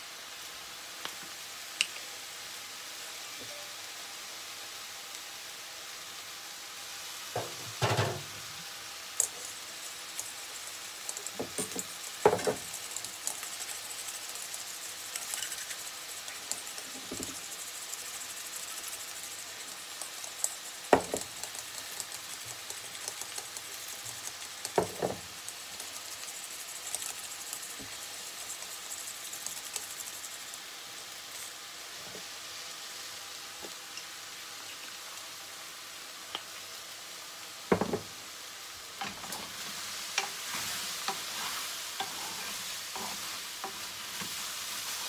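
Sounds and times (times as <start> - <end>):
faint hiss: 0.0 - 45.0
knocks on bowl or counter: 37.7 - 38.1
spoon scraping in metal bowl: 40.5 - 43.3.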